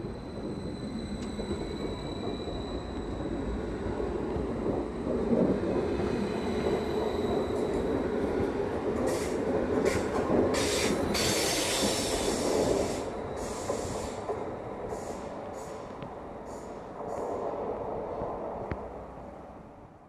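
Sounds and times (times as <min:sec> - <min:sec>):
train rolling rumble: 0:00.0 - 0:20.0.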